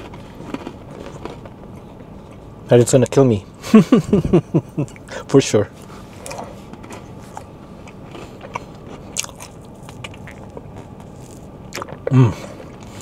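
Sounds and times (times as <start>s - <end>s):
person chewing and crunching: 0.0s - 2.5s, 5.8s - 13.0s.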